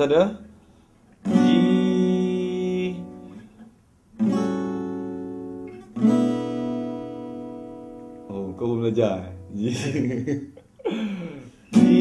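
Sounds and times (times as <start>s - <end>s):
acoustic guitar chords strummed: 1.2s - 10.2s, 11.5s - 12.0s.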